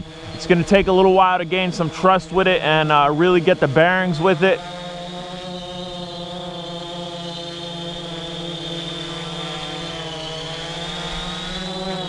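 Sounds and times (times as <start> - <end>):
quadcopter buzzing with high whine: 0.0 - 12.0.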